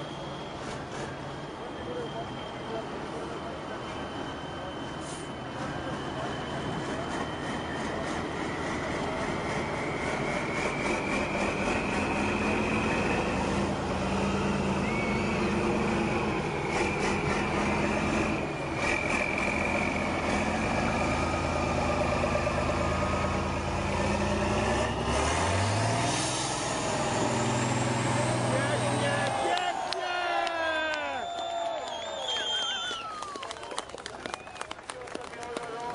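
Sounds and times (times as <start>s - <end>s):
truck engine working hard: 5.1s - 29.7s.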